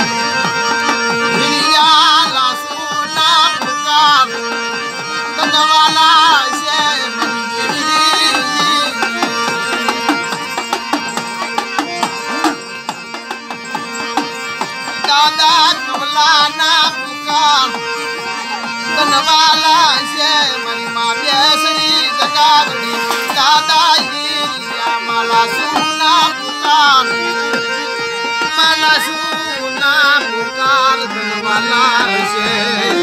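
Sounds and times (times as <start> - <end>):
hand drum: 0.0 - 33.0
harmonium chords: 0.0 - 33.0
man singing folk song: 1.3 - 9.5, 14.9 - 17.8, 18.7 - 27.4, 28.4 - 33.0.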